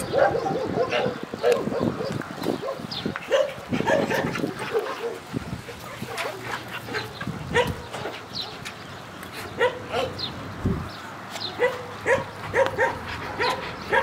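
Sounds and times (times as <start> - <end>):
dog barking: 0.0 - 5.2, 6.9 - 7.9, 9.6 - 10.2, 11.6 - 14.0.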